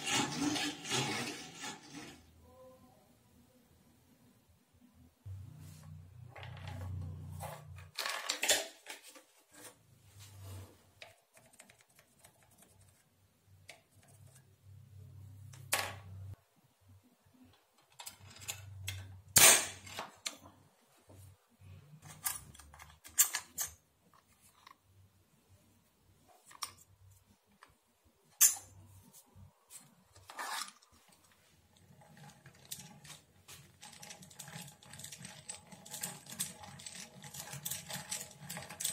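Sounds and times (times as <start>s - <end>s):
metal parts clicking and tapping: 17.8s - 20.5s, 22.0s - 24.7s, 28.4s - 28.7s, 30.2s - 38.9s.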